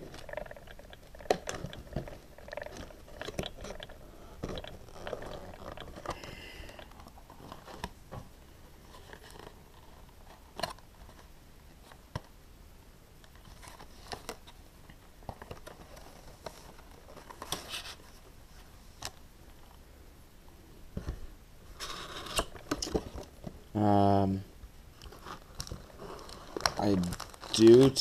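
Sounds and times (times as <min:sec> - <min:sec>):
packaging rustle: 0:00.0 - 0:08.0, 0:25.0 - 0:28.0.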